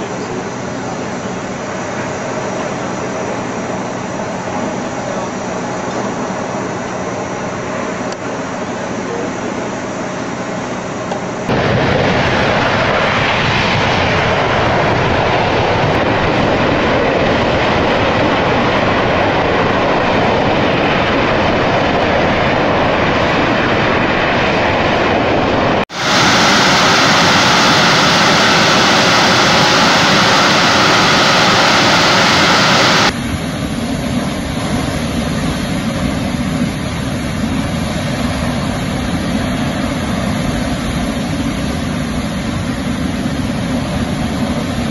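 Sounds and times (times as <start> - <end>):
high-pressure gas roaring: 0.0 - 33.6.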